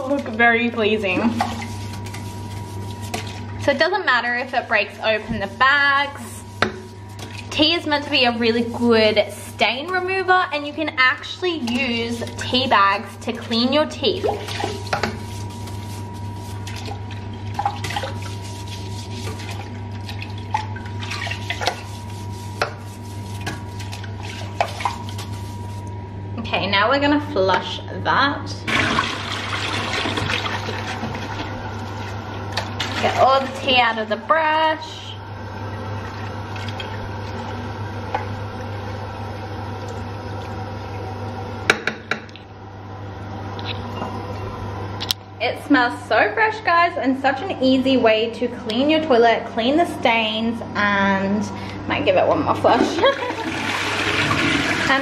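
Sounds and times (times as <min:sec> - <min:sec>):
toilet brush swishing in water: 0:00.0 - 0:25.9, 0:28.7 - 0:33.9
steady low hum: 0:00.0 - 0:55.0.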